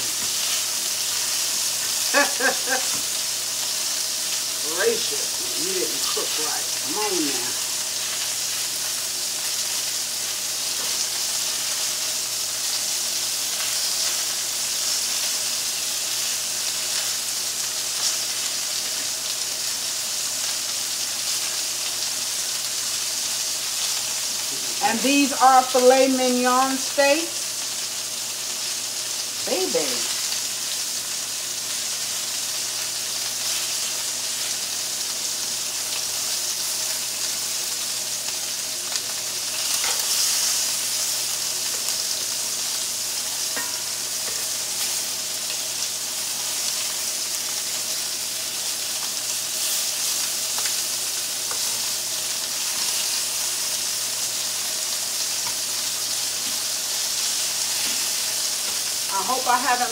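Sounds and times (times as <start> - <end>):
meat sizzling in skillets: 0.0 - 59.9.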